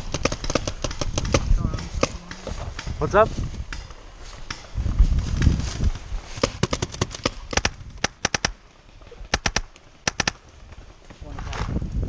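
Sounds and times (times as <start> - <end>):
paintball marker firing pops: 0.0 - 3.0, 6.4 - 8.6, 9.3 - 10.4.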